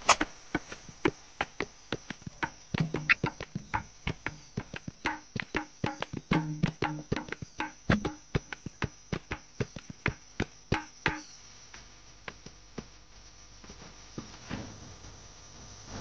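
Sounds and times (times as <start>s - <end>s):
faint steady hiss: 0.0s - 16.0s
sharp ringing knocks: 1.4s - 11.3s.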